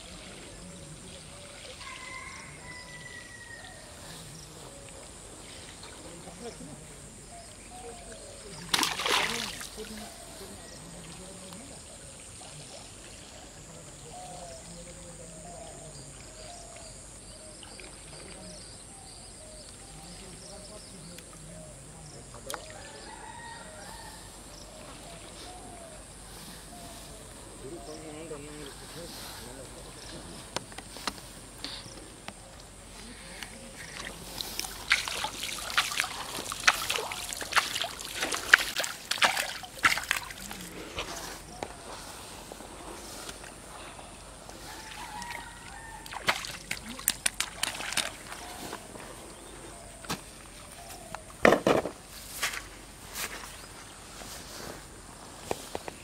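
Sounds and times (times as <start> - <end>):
water splashing: 7.6 - 15.1, 28.4 - 48.9.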